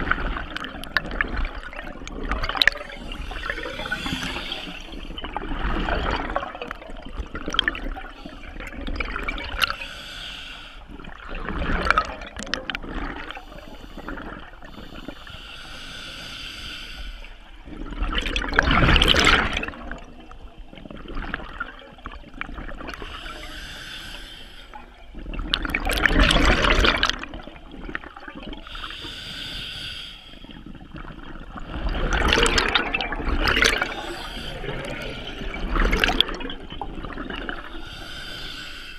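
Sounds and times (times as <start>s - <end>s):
exhaled bubbles gushing: 0.0s - 9.8s, 10.9s - 15.2s, 17.6s - 23.4s, 24.8s - 28.8s, 30.5s - 37.8s
regulator inhale hiss: 2.9s - 5.2s, 9.6s - 11.0s, 13.3s - 17.5s, 23.0s - 25.0s, 28.7s - 30.7s, 33.8s - 35.6s, 37.7s - 38.9s.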